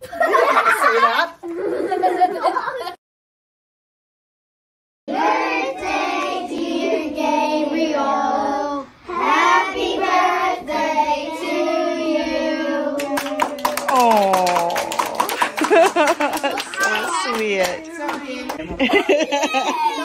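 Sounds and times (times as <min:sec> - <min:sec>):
children singing together: 0:05.1 - 0:13.7
people clapping: 0:13.0 - 0:19.1.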